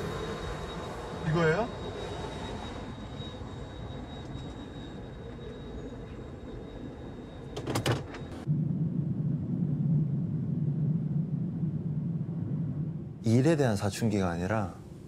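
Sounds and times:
faint high whine: 0:00.0 - 0:15.0
jet cabin rumble: 0:07.0 - 0:15.0.

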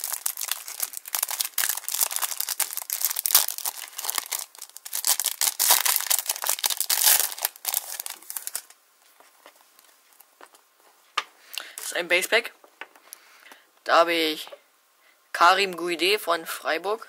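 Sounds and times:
foil wrapper tearing and crinkling: 0:00.0 - 0:08.8.

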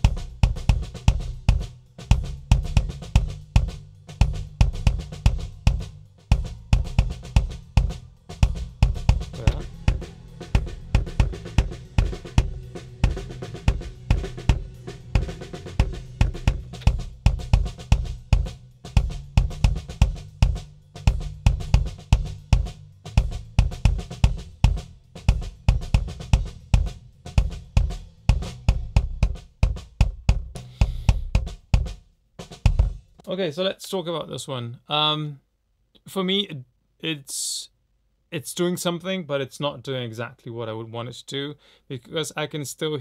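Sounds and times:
kick drum beats: 0:00.0 - 0:33.2
snare drum spill: 0:02.5 - 0:20.6, 0:23.2 - 0:33.0.

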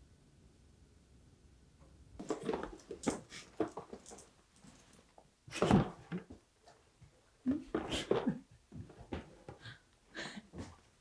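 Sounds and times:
rustling and light knocks: 0:02.2 - 0:09.7.

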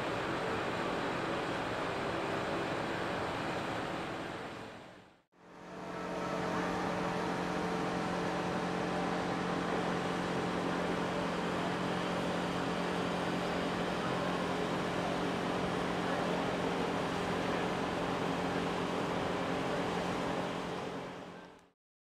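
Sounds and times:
broad rush of noise: 0:00.0 - 0:21.5
machinery hum: 0:05.4 - 0:21.2.

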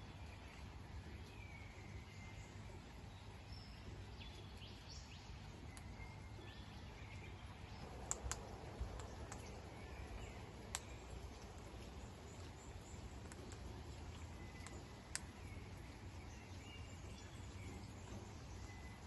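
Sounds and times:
low outdoor hum: 0:00.0 - 0:19.0
faint bird chirps: 0:01.4 - 0:19.0
parrot beaks pecking seed: 0:07.8 - 0:11.7, 0:12.4 - 0:15.4.

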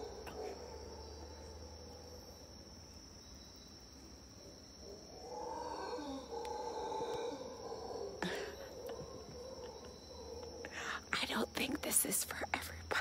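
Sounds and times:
howler monkeys howling: 0:00.0 - 0:02.5, 0:04.4 - 0:11.1.

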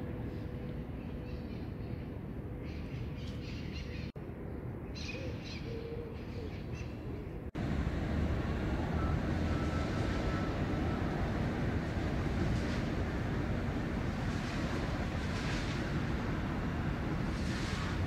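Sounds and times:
low outdoor rumble: 0:00.0 - 0:18.0
birds chirping: 0:00.7 - 0:04.2.

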